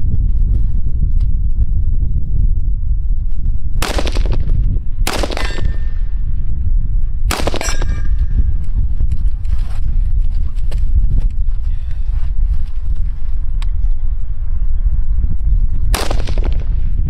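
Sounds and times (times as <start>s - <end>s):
rifle shots: 3.8s - 6.0s, 7.3s - 8.0s, 16.0s - 16.7s
metallic ring of steel target: 5.2s - 6.4s, 7.3s - 8.6s.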